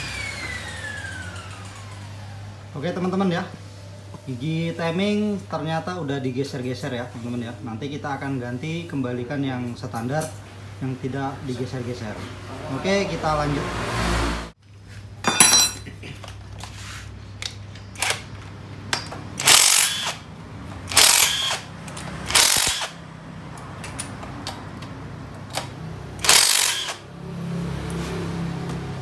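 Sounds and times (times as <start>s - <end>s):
power tool bursts on bolts: 19.4s - 20.3s, 20.9s - 23.0s, 25.6s - 27.0s.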